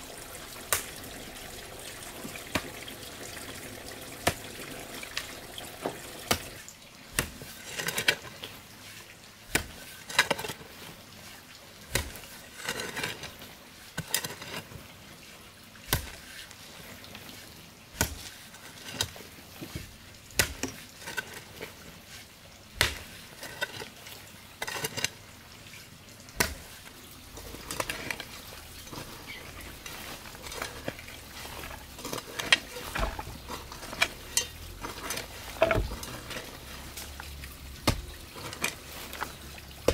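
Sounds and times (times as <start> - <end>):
earth scraping and crumbling: 0.0 - 39.9
metal hoe chopping into soil: 7.2 - 8.1, 9.5 - 10.3, 11.9 - 13.0, 18.0 - 18.3, 20.3 - 21.5, 22.7 - 24.0, 26.4 - 39.9.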